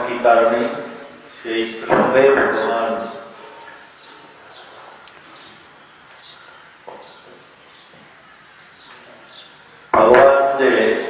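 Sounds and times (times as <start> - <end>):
small bird chirping: 2.4 - 9.9.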